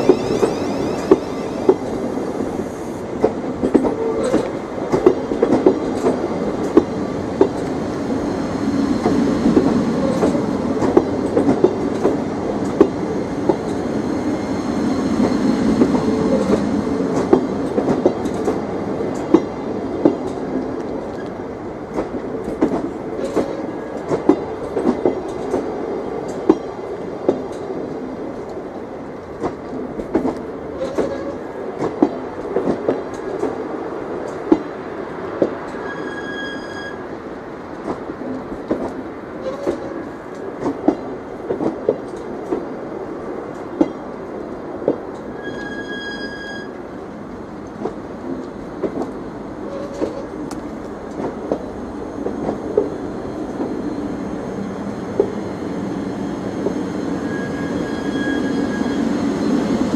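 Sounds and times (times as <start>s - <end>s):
electric train rumble: 0.0s - 59.9s
wheels clacking over rail joints: 9.0s - 14.0s.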